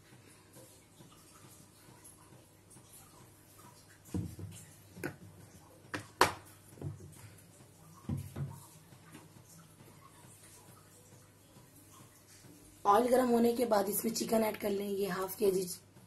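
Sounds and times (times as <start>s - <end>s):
soft knocks: 8.0s - 8.6s.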